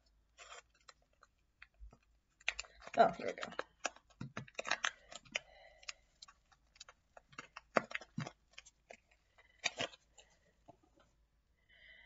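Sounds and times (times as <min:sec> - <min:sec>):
small box clicks and taps: 0:01.6 - 0:09.0.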